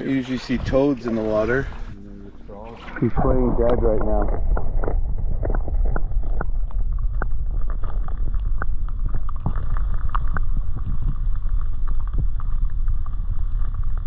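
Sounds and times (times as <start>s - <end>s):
small irregular clicks: 3.7s - 14.0s.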